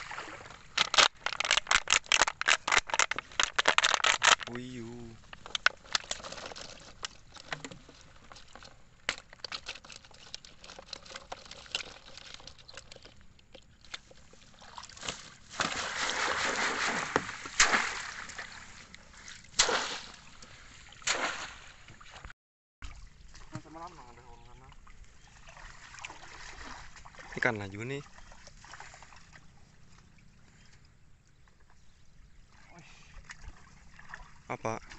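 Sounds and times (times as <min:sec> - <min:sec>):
water sloshing and splashing: 0:00.0 - 0:34.9
small clicks and rattles: 0:00.8 - 0:04.5, 0:05.2 - 0:14.2.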